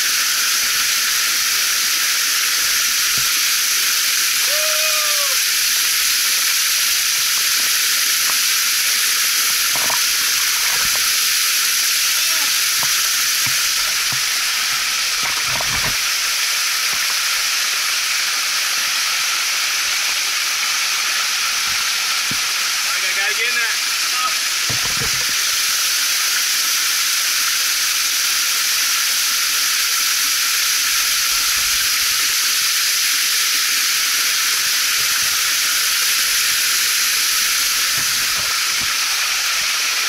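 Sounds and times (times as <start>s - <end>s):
waterfall splashing into pool: 0.0s - 40.0s.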